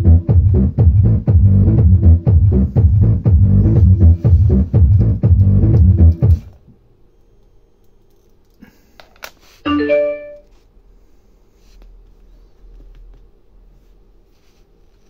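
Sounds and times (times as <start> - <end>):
electronic dance music: 0.0 - 6.5
electronic chime: 9.7 - 10.4.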